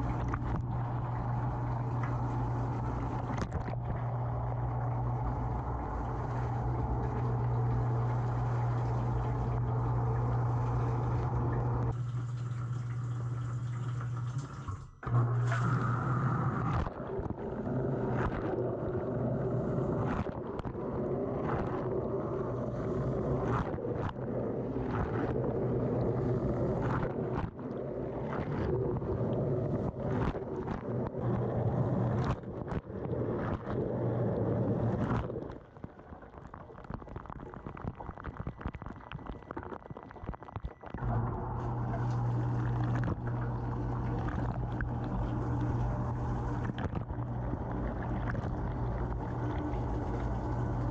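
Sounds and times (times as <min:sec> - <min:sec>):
dishwasher pump humming: 0:00.0 - 0:20.1, 0:41.0 - 0:50.9.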